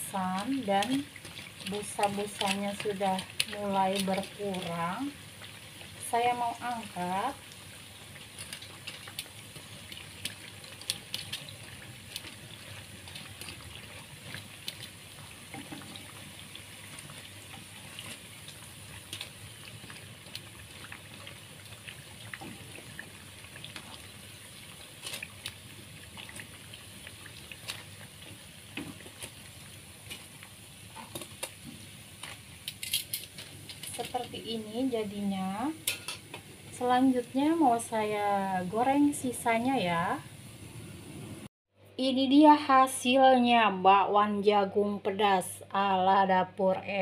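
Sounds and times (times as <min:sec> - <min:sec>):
oil sizzling with crackling pops: 0:00.0 - 0:41.5
metal tongs clicking on pan: 0:32.6 - 0:34.2, 0:35.8 - 0:36.3.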